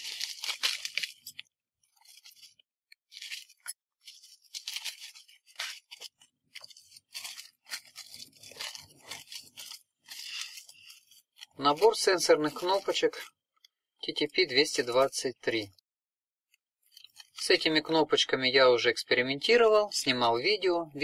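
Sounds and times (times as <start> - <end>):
packaging crinkling and rustling: 0.0 - 13.7, 16.9 - 17.7.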